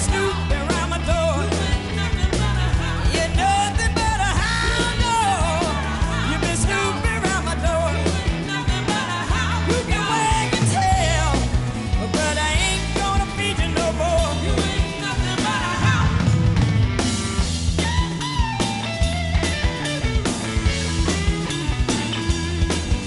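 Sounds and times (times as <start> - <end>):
woman singing: 0.0 - 16.4
drums: 0.0 - 23.0
live blues band: 0.0 - 23.0
walking bass line: 0.0 - 23.0.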